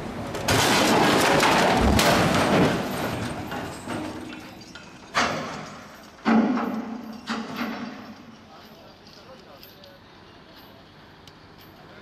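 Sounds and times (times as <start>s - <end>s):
heavy steel load crashing: 0.0s - 8.1s
noisy clatter: 0.2s - 8.3s.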